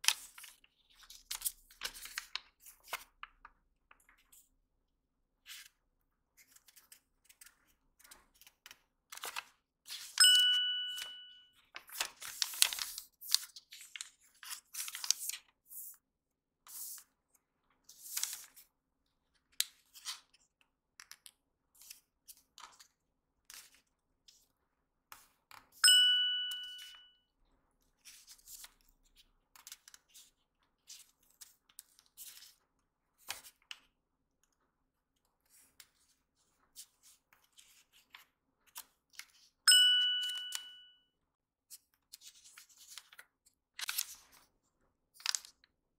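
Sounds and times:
paper crinkling: 0:00.0 - 0:03.3, 0:11.7 - 0:15.5, 0:42.1 - 0:44.5
bell-like chime: 0:10.2 - 0:11.5, 0:25.8 - 0:27.1, 0:39.7 - 0:41.0.

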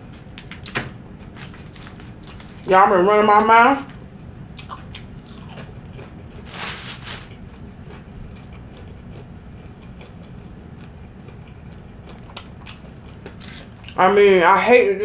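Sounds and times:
steady low hum: 0:00.0 - 0:15.0
person chewing: 0:04.5 - 0:14.0.

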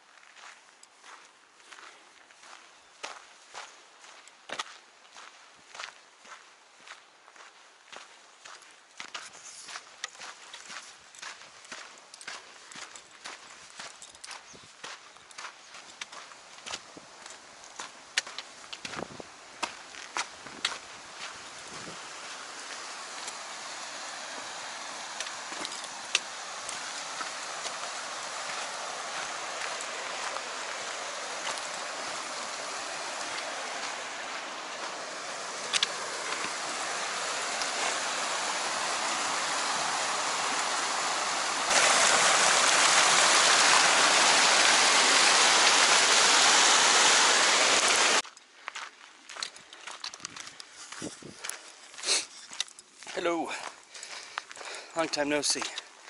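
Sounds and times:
footsteps on stone: 0:00.2 - 0:40.6, 0:48.2 - 0:55.9
creek water rushing over rocks: 0:09.8 - 0:48.2.

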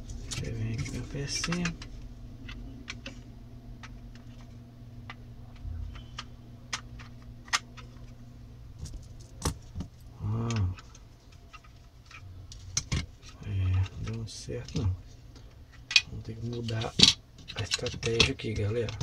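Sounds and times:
plastic parts clicking: 0:00.3 - 0:03.2, 0:05.0 - 0:08.1, 0:09.3 - 0:15.0
man murmuring: 0:10.1 - 0:10.8.

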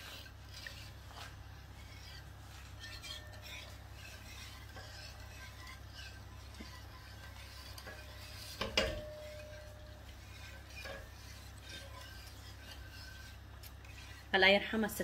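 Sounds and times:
utensil stirring in pot: 0:00.0 - 0:15.0
utensil clinking on pot: 0:04.8 - 0:12.1.

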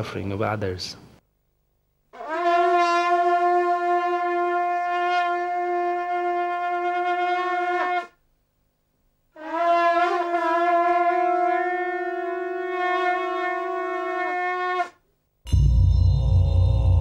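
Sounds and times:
horn-like wind instrument note: 0:02.2 - 0:08.2, 0:09.4 - 0:15.6.

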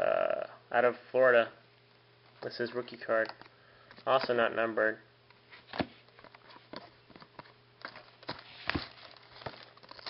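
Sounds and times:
cards being flipped and shuffled: 0:05.5 - 0:10.0.

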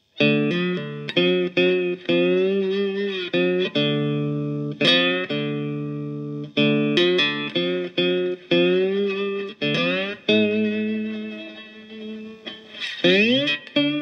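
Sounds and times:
slide guitar notes through an amp: 0:00.0 - 0:14.0.

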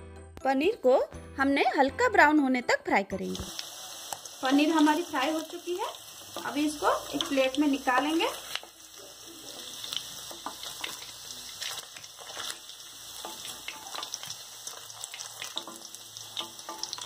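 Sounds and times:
food sizzling in hot oil: 0:03.1 - 0:17.0
oil crackles: 0:05.8 - 0:17.0.

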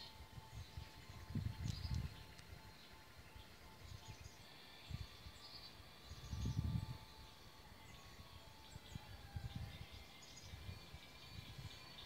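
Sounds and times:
wind buffeting microphone: 0:00.0 - 0:04.2, 0:06.0 - 0:12.0
bird chirps: 0:00.0 - 0:12.0
insects: 0:00.0 - 0:12.0.

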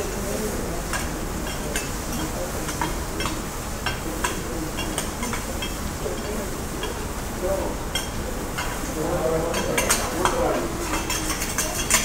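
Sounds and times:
steady sizzle: 0:00.0 - 0:12.0
metal spatulas clacking on griddle: 0:00.9 - 0:07.0, 0:09.5 - 0:12.0.

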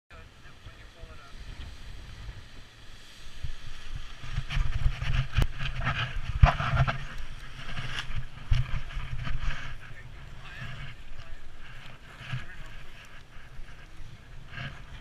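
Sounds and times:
wind buffeting microphone: 0:00.1 - 0:15.0
fabric rustling and flapping: 0:03.9 - 0:15.0.

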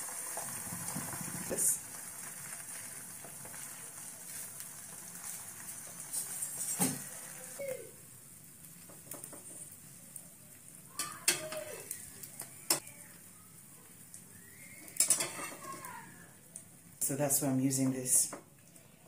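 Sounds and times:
bread sizzling in a frying pan: 0:00.0 - 0:19.0
spatula knocking and scraping pan: 0:15.0 - 0:15.8.

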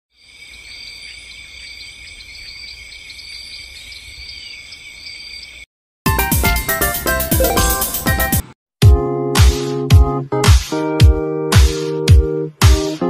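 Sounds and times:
insect chorus: 0:00.1 - 0:05.7
loud electronic music: 0:06.1 - 0:08.4.

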